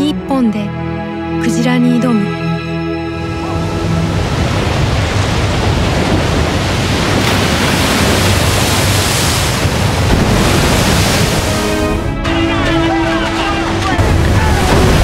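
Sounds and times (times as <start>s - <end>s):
sea water rushing and splashing: 3.2s - 15.0s
wind buffeting microphone: 3.5s - 11.7s
whale thrashing in water: 3.5s - 12.0s.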